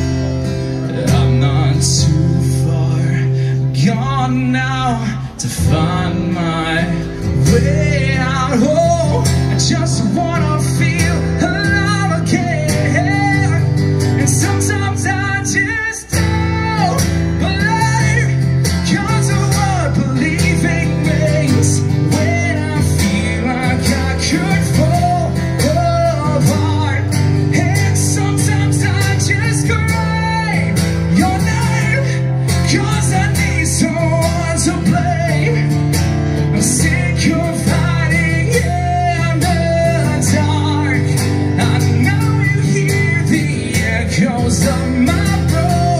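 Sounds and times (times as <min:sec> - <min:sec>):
acoustic guitar strumming: 0:00.0 - 0:45.9
man singing: 0:00.0 - 0:45.9.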